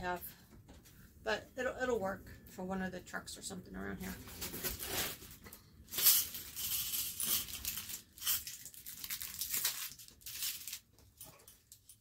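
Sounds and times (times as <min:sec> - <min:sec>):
packaging crinkling and tearing: 0:04.2 - 0:11.2.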